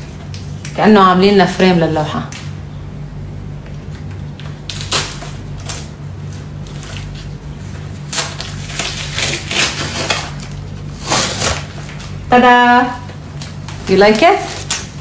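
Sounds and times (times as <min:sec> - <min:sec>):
steady low hum: 0:00.0 - 0:15.0
tape ripping off paper: 0:04.7 - 0:05.9, 0:08.1 - 0:12.2, 0:13.4 - 0:15.0.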